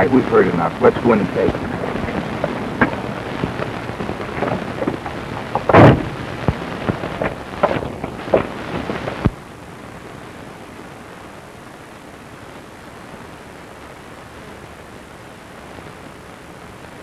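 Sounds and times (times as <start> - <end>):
loud burst: 0.0 - 9.3
old film soundtrack crackle: 0.0 - 17.0
steady hiss: 0.0 - 17.0.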